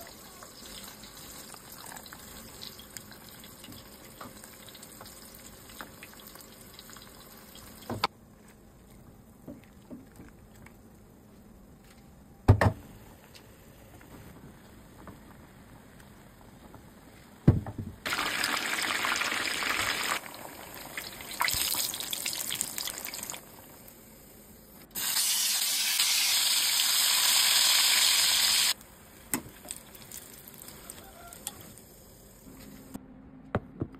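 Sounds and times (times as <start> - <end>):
hot oil sizzling: 0.0 - 8.1, 18.1 - 24.3, 24.9 - 32.5.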